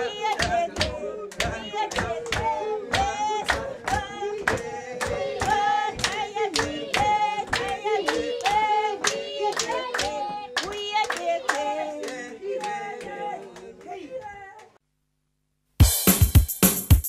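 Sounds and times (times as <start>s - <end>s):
group hand-clapping: 0.0s - 14.3s
voices singing along: 0.0s - 14.8s.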